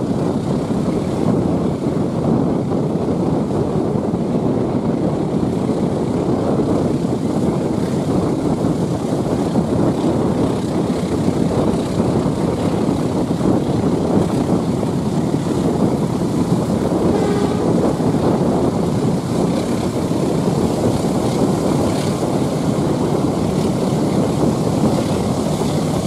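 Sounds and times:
rushing wind: 0:00.0 - 0:26.0
road rumble: 0:06.6 - 0:26.0.

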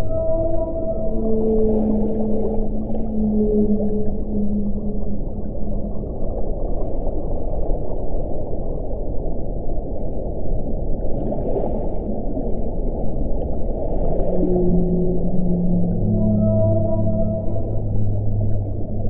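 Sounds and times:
low whale call: 0:00.0 - 0:06.2, 0:14.2 - 0:19.0
low rushing ocean noise: 0:00.0 - 0:19.0.

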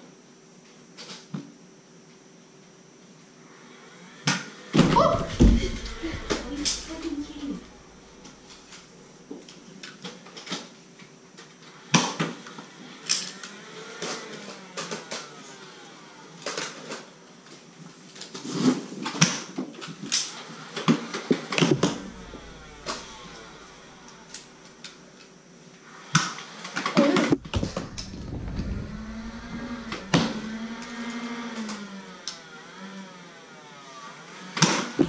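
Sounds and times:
darts striking walls and floor: 0:04.8 - 0:08.4, 0:21.6 - 0:24.5
foam dart blasters firing: 0:04.8 - 0:08.5, 0:21.6 - 0:24.6, 0:27.2 - 0:31.1.

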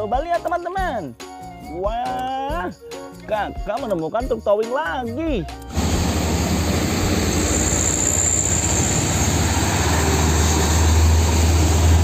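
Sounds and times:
diesel truck engine rumble: 0:05.7 - 0:12.0
road noise: 0:05.7 - 0:12.0.

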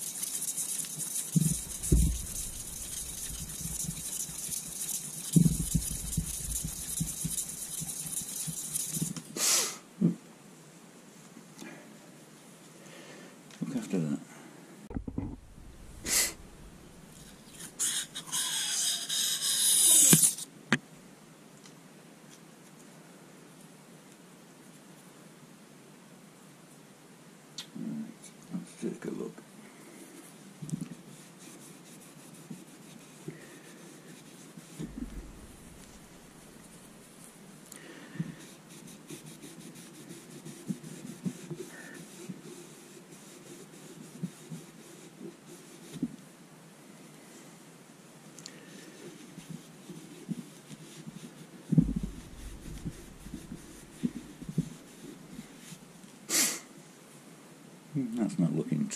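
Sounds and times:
cloth rubbing on metal: 0:00.0 - 0:09.2, 0:14.9 - 0:20.5, 0:31.0 - 0:37.5, 0:48.9 - 0:55.9
soft knocks of handling metal: 0:14.9 - 0:17.2, 0:34.8 - 0:36.4
strip peeling off with rasping screech: 0:17.2 - 0:20.5.

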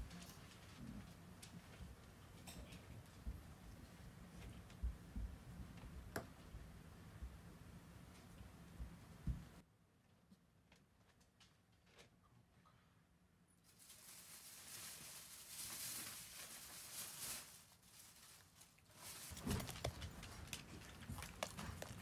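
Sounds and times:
soft rustling: 0:13.7 - 0:22.0
paws pattering on cardboard: 0:18.9 - 0:22.0.

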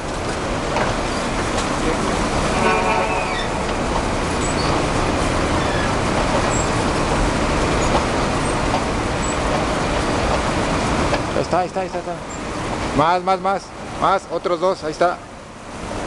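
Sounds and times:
loud rushing noise: 0:01.3 - 0:07.6.

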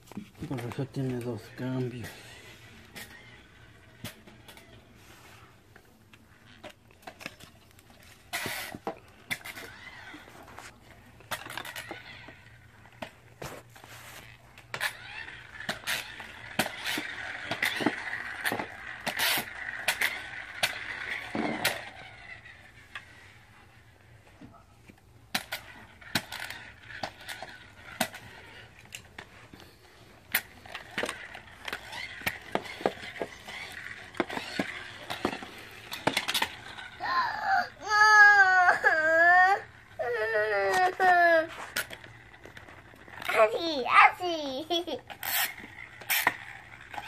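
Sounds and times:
toy wheels whirring: 0:00.0 - 0:47.0
child whining: 0:37.0 - 0:41.7.

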